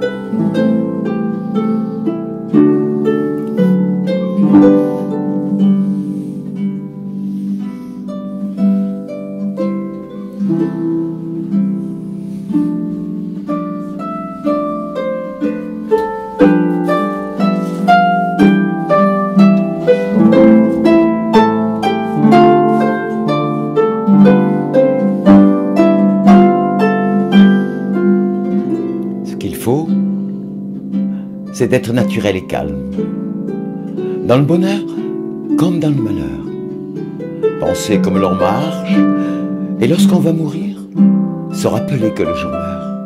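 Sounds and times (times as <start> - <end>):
harp plucked notes: 0.0 - 43.0.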